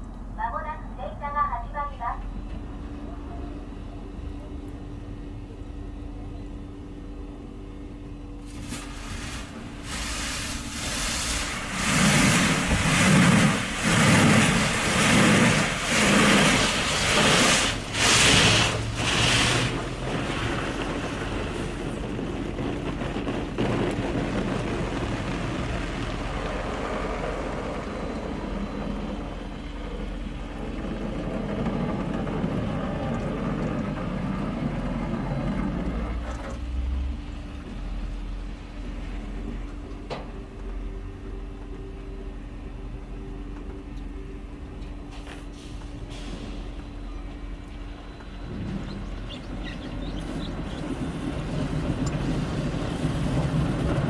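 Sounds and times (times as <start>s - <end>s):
water spray hissing on car: 8.4s - 28.6s
car wash machine pulses: 8.6s - 38.1s.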